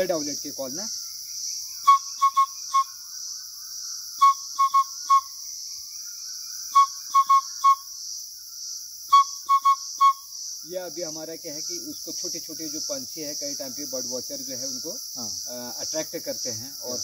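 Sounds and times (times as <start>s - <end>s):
man whistling owl-like hoots: 4.2s - 5.3s, 6.7s - 7.8s, 9.1s - 10.2s.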